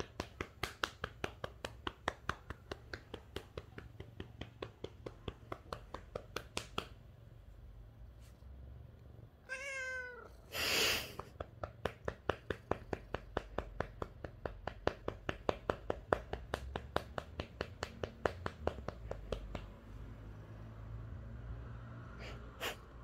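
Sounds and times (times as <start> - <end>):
hand patting cat: 0.0 - 7.5, 10.9 - 20.2
cat meowing: 9.4 - 10.5.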